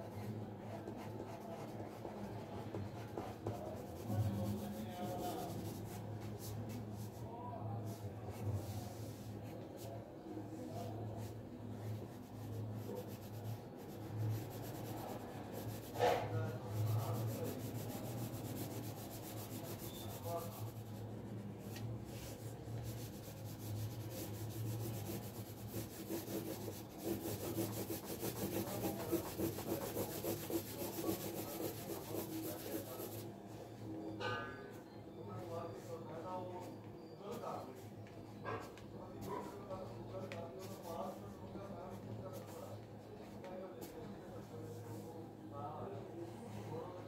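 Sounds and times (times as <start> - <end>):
pencil scratching on paper: 0.1 - 6.0, 12.0 - 21.0, 22.2 - 33.2.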